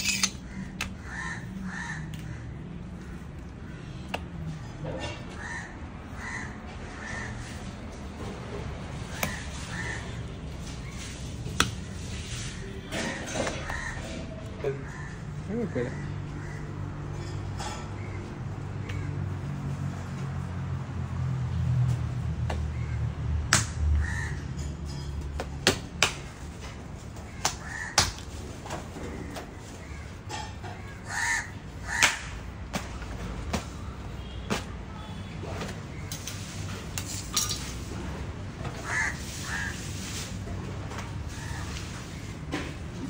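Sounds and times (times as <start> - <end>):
bird harsh calls: 29.6 - 32.2.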